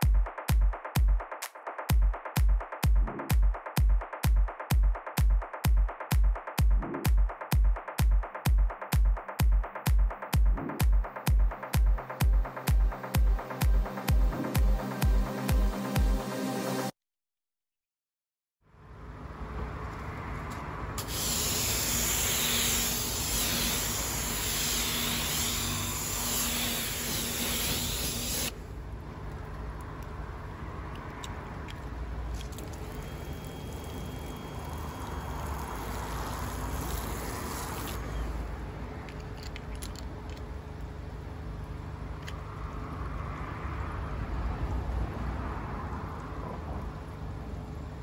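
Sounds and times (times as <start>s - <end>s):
water spraying onto car: 32.2s - 38.0s.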